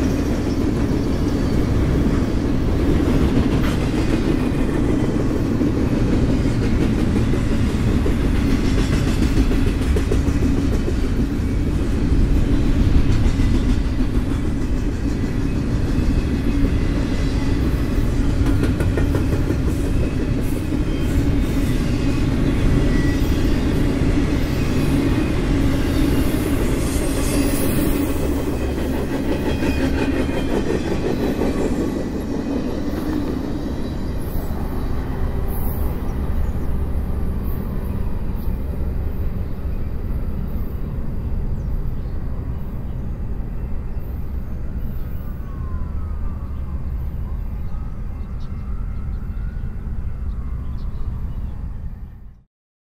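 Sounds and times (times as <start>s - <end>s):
freight train wheels clattering: 0.0s - 34.6s
low train rumble: 0.0s - 52.4s.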